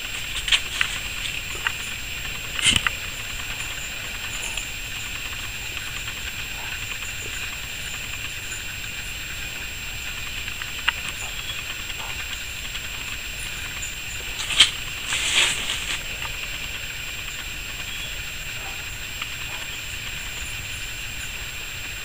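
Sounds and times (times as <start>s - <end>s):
wire cage clacking: 0.0s - 9.6s, 10.5s - 18.0s
steady background hiss: 0.0s - 22.0s.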